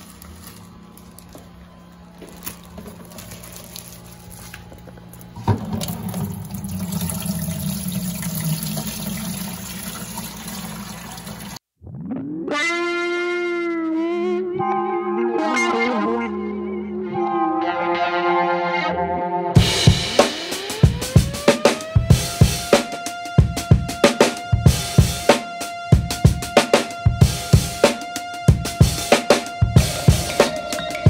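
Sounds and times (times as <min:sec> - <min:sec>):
aquarium water noise: 0:05.2 - 0:11.6
water sloshing in bucket: 0:05.4 - 0:11.6.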